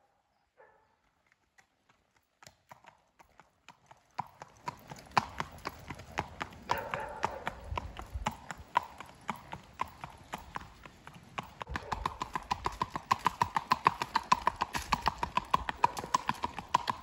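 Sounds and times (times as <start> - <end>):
horse hoofbeats on pavement: 0.9 - 17.0.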